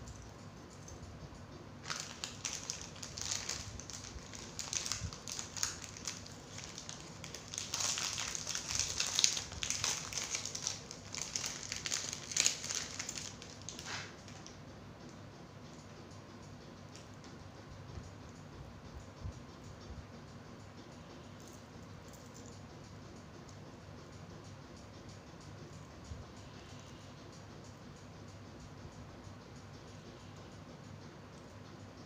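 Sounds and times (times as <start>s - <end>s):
plastic packet crinkling: 1.8s - 14.5s.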